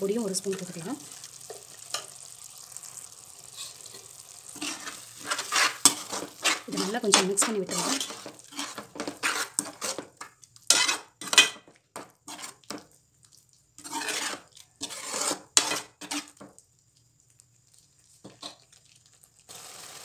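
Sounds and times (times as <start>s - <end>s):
metal ladle scraping a pan: 0.4s - 2.3s, 3.4s - 11.6s, 12.2s - 12.8s, 13.8s - 16.4s.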